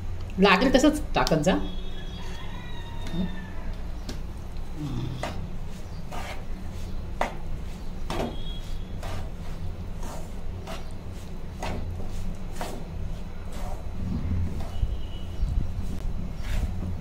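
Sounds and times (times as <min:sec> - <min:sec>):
steady low hum: 0:00.0 - 0:17.0
spatula scraping crumbly mixture: 0:05.1 - 0:17.0.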